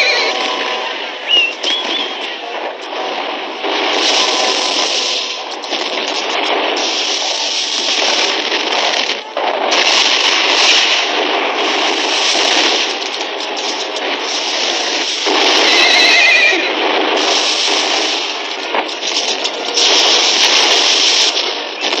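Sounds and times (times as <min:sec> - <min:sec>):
horse whinnying: 0:00.0 - 0:00.4, 0:15.6 - 0:16.8
horses galloping: 0:00.0 - 0:00.7, 0:01.3 - 0:22.0.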